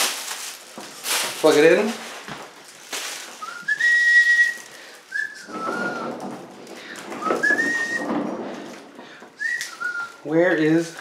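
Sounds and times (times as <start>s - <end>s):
rustling handling noise: 0.0s - 11.0s
person whistling: 3.4s - 6.1s, 7.2s - 8.1s, 9.4s - 10.2s.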